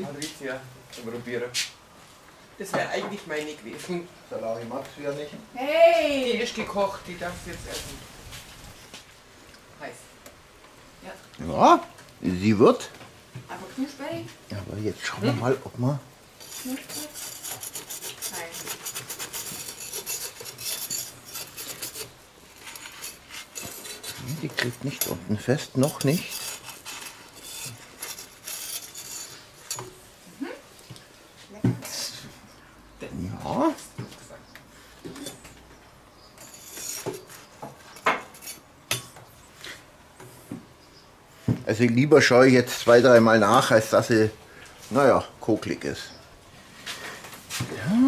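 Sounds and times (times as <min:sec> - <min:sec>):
metal spatula scraping stone: 0:16.4 - 0:30.0, 0:36.4 - 0:39.0.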